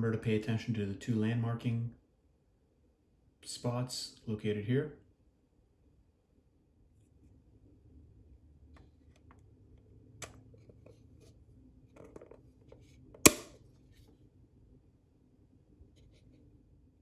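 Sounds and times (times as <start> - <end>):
sharp plastic snap: 13.2 - 13.6.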